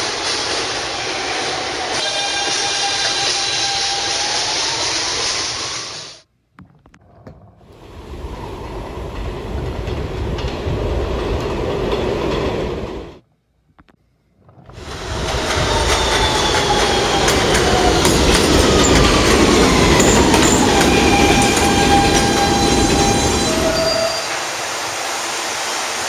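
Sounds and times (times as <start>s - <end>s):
train wheels squealing: 0.0s - 6.2s, 14.8s - 24.4s
subway train rumbling: 0.0s - 6.3s, 7.6s - 13.2s, 14.5s - 26.0s.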